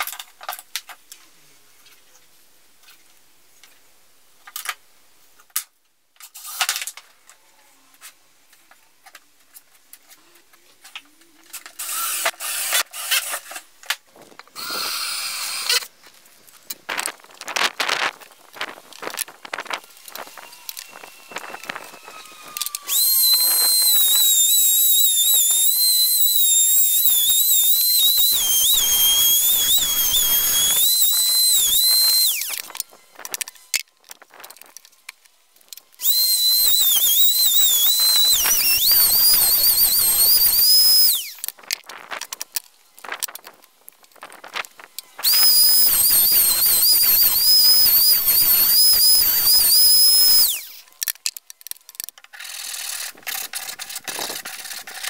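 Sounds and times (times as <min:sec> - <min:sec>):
router whining cutting plywood: 0:20.0 - 0:33.1, 0:36.0 - 0:41.5, 0:45.2 - 0:50.9.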